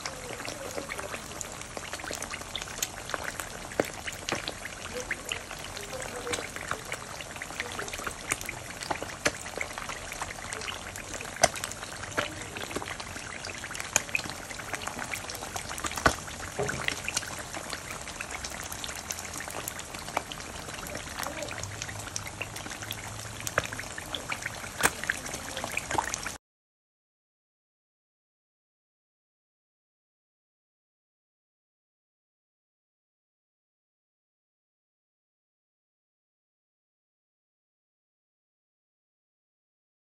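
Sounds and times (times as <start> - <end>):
eggs sizzling in hot oil: 0.0 - 26.4
oil popping and crackling: 0.0 - 26.4.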